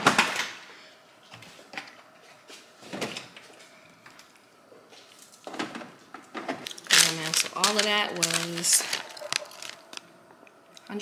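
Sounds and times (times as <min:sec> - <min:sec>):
knocks and rustles of groceries: 0:00.0 - 0:00.7, 0:01.3 - 0:03.5, 0:04.9 - 0:10.1.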